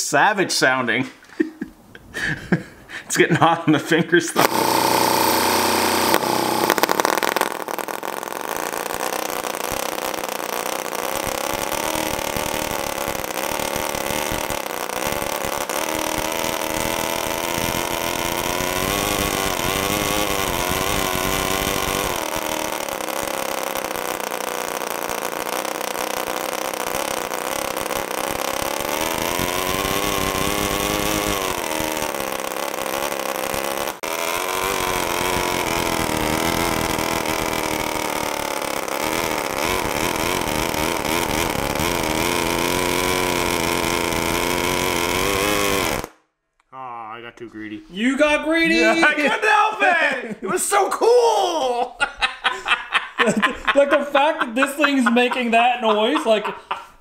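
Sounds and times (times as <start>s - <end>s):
small engine revving: 4.4s - 46.2s.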